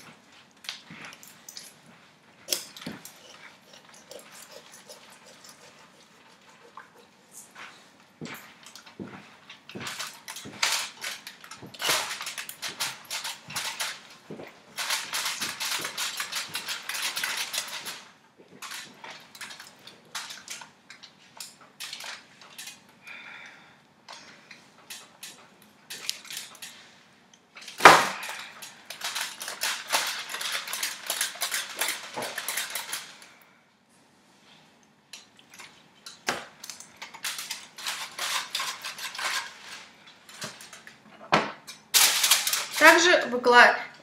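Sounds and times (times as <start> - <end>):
aluminium foil crinkling: 8.6 - 22.8, 24.8 - 26.9, 27.6 - 33.4, 35.6 - 41.0, 41.8 - 44.0.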